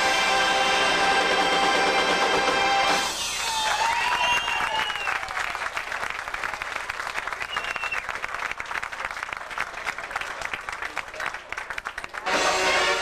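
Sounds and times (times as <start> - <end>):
crowd applauding: 3.1 - 13.0
short whistle: 3.2 - 5.2, 7.4 - 8.1
shouts and whoops: 3.3 - 5.6.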